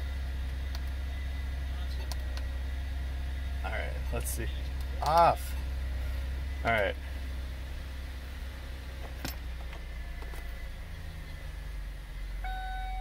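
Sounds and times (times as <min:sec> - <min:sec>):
car cabin hum: 0:00.0 - 0:13.0
steady high tone: 0:12.4 - 0:13.0.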